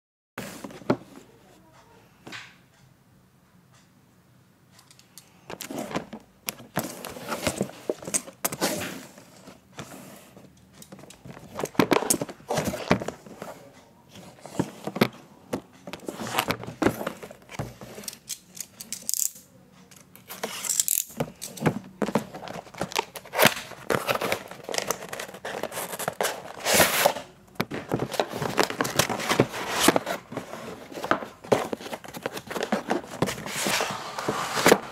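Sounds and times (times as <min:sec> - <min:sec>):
cardboard box rustling and scraping: 0:00.4 - 0:01.2, 0:05.6 - 0:10.5, 0:11.2 - 0:15.2, 0:15.9 - 0:18.1, 0:21.7 - 0:34.9.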